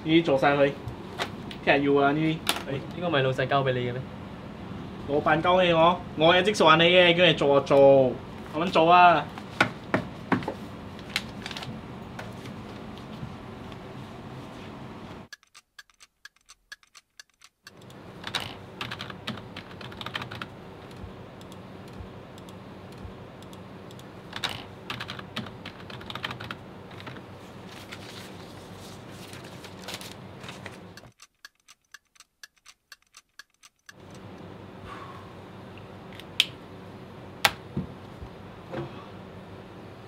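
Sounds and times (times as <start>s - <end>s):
steady low hum: 0.0s - 15.3s, 17.7s - 31.2s, 33.9s - 40.0s
typing on computer keyboard: 15.3s - 22.6s, 23.4s - 27.2s, 31.0s - 34.0s.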